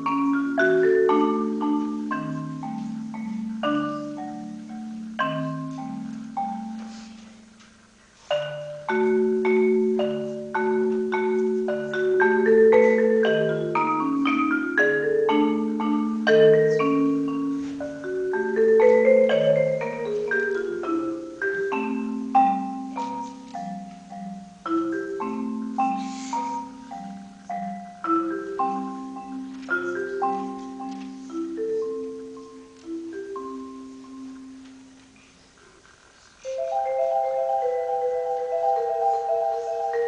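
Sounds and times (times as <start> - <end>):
marimba played with mallets: 0.0 - 40.0.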